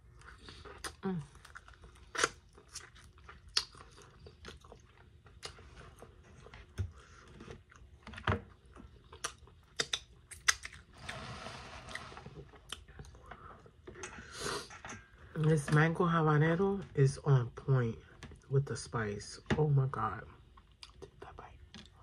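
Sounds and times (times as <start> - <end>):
chewing with wet clicks: 0.0 - 10.9, 12.5 - 15.5, 20.4 - 22.0
lip smacks: 2.0 - 4.0, 9.2 - 10.9.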